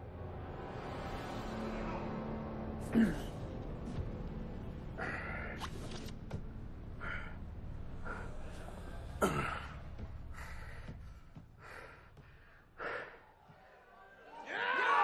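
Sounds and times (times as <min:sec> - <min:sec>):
man breathing heavily: 0:06.9 - 0:13.6.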